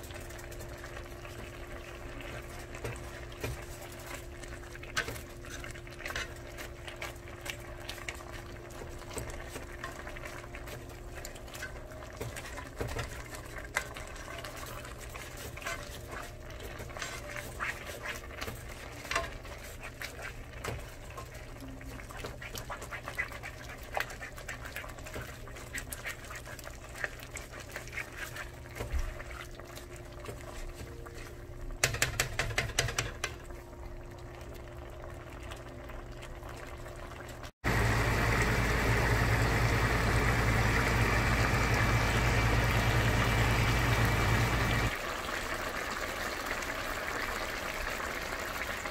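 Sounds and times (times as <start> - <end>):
greens squelching and bubbling: 0.1 - 31.8
plastic utensil clicking on pan: 31.8 - 33.4
loud steady hum: 37.7 - 44.9.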